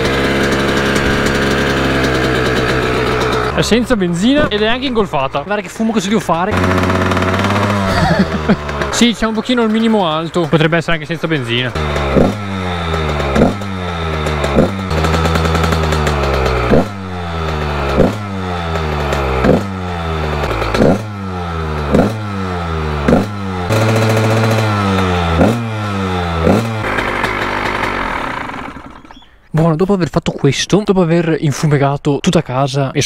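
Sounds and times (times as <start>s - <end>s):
two-stroke engine revving: 0.0s - 29.3s
person talking: 3.5s - 6.6s, 7.9s - 11.8s, 29.5s - 33.0s.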